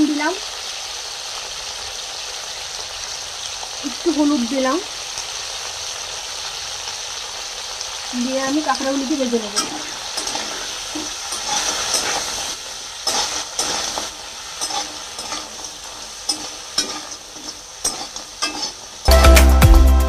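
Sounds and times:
crab sizzling in hot oil: 0:00.0 - 0:19.6
metal spatula scraping pan: 0:09.3 - 0:19.1.

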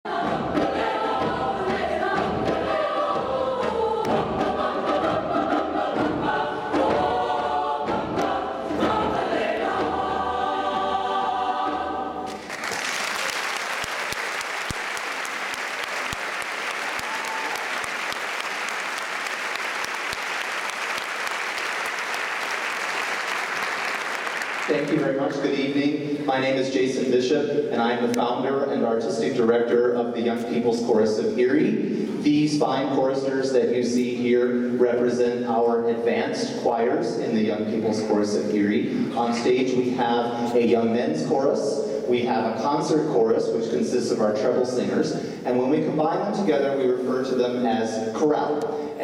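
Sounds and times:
choir singing: 0:00.0 - 0:25.4
audience applause: 0:12.3 - 0:25.0.

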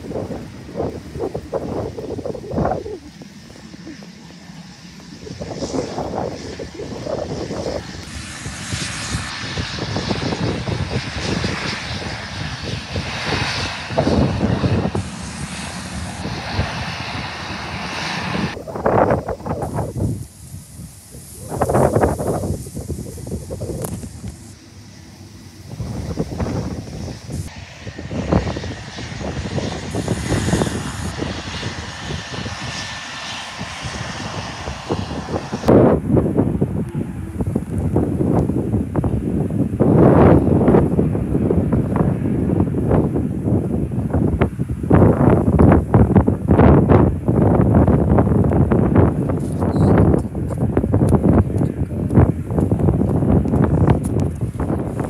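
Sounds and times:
faint steady whine: 0:00.0 - 0:12.8, 0:13.4 - 0:39.5
turboprop plane engines: 0:00.0 - 0:55.0
wind rumbling on microphone: 0:00.0 - 0:55.0.

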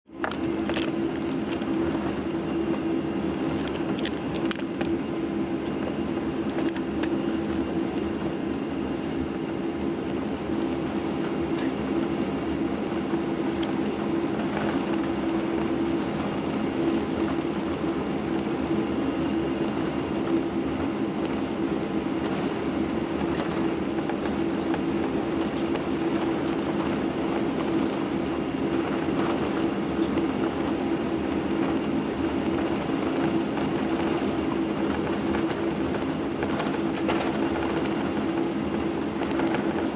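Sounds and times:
constant rushing noise: 0:00.1 - 0:39.9
jet engines humming in cabin: 0:00.1 - 0:39.9.

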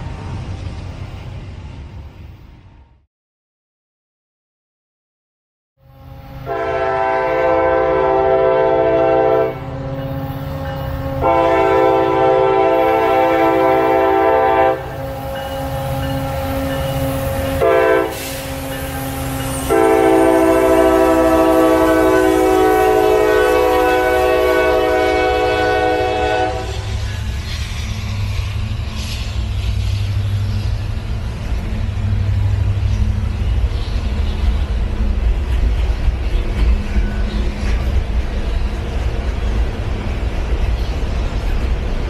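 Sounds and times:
locomotives rumbling past: 0:00.0 - 0:02.8, 0:06.2 - 0:42.0
locomotive air horn blasts: 0:05.8 - 0:16.7, 0:17.3 - 0:27.0.

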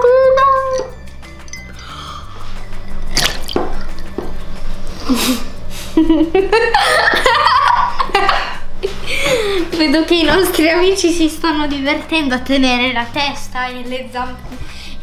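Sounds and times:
water splashing and dripping: 0:03.1 - 0:04.1.

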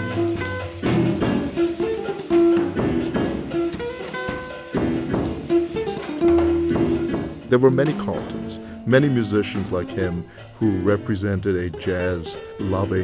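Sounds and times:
drum and cymbal hits: 0:00.0 - 0:08.5
jazz electric guitar melody: 0:00.0 - 0:13.0.

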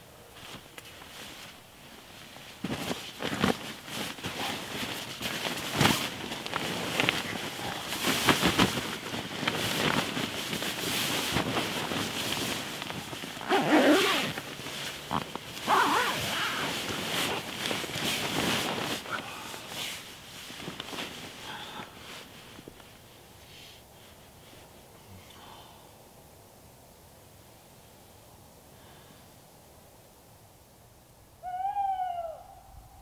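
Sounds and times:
sleeping bag rustling: 0:00.2 - 0:25.1.

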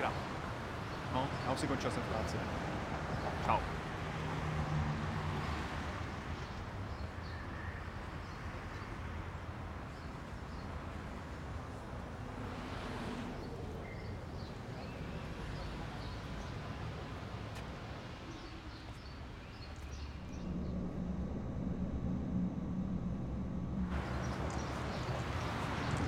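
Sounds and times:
small birds chirping: 0:13.4 - 0:26.0
steady low hum: 0:17.9 - 0:26.0
low rumble: 0:19.8 - 0:26.0.

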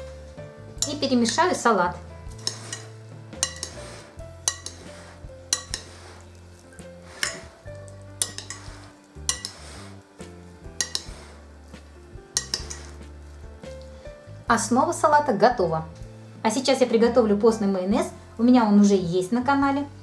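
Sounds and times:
spoon scraping vegetables: 0:00.0 - 0:14.1
soft background music: 0:00.0 - 0:20.0
spoon clinking against glass: 0:02.4 - 0:03.8, 0:04.4 - 0:04.8, 0:05.5 - 0:05.9, 0:08.2 - 0:08.7, 0:09.3 - 0:09.6, 0:10.8 - 0:11.2, 0:12.4 - 0:12.9.

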